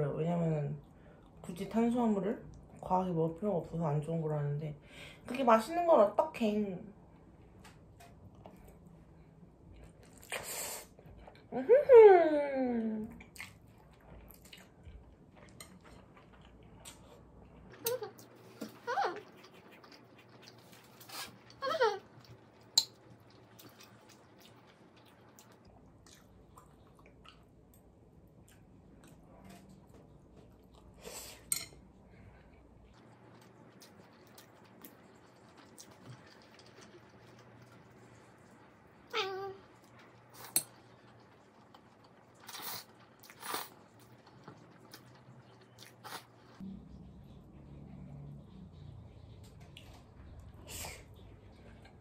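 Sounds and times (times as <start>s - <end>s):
faint chewing: 9.6s - 11.5s, 13.1s - 38.8s, 39.7s - 52.0s
noodles being slurped: 41.4s - 46.6s.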